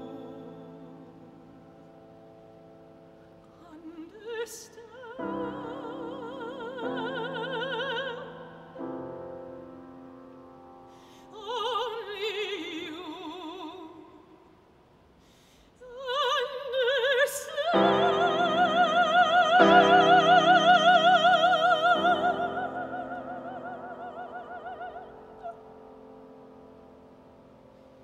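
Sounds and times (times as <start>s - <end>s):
woman singing with vibrato: 0.0s - 2.2s, 3.5s - 9.2s, 11.2s - 14.5s, 15.8s - 26.1s
grand piano: 0.0s - 14.0s, 16.0s - 28.0s.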